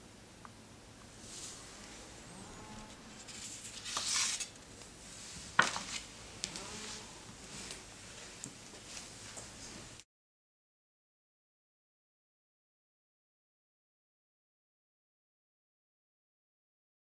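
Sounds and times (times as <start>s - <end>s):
paper swishing: 3.3s - 4.5s.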